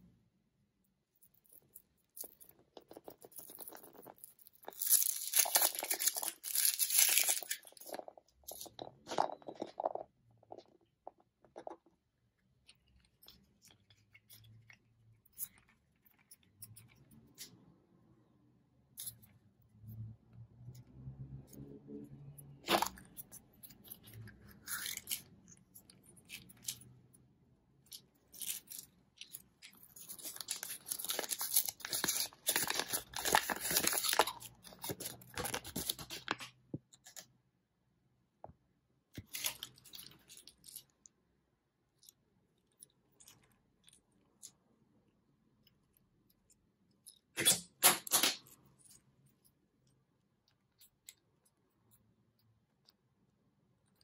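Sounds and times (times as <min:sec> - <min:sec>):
paper leaflet crinkling: 0:30.0 - 0:36.4.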